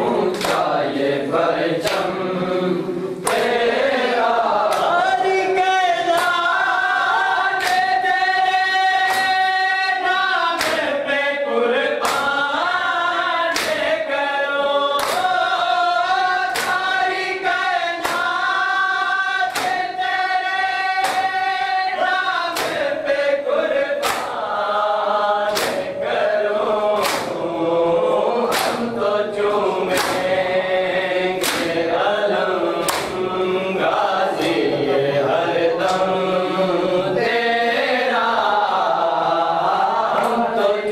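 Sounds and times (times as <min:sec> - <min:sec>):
men chanting together: 0:00.0 - 0:40.9
hands slapping chests: 0:00.3 - 0:00.8, 0:01.8 - 0:02.2, 0:03.2 - 0:03.6, 0:04.6 - 0:05.1, 0:06.1 - 0:06.5, 0:07.6 - 0:08.0, 0:09.0 - 0:09.5, 0:10.6 - 0:11.0, 0:12.0 - 0:12.4, 0:13.5 - 0:14.0, 0:15.0 - 0:15.6, 0:16.4 - 0:18.4, 0:19.4 - 0:21.7, 0:22.5 - 0:23.0, 0:23.9 - 0:24.5, 0:25.4 - 0:26.3, 0:26.9 - 0:27.5, 0:28.5 - 0:30.5, 0:31.4 - 0:31.9, 0:32.8 - 0:33.3, 0:40.1 - 0:40.4.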